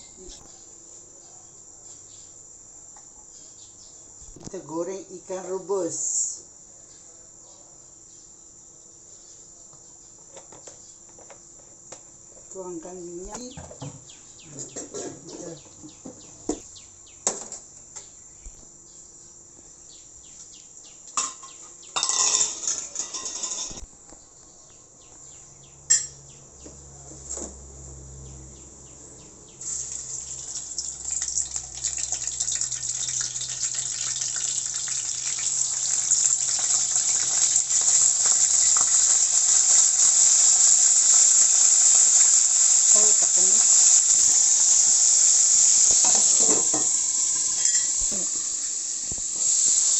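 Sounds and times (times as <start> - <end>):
fish frying in hot oil: 29.6 - 49.9.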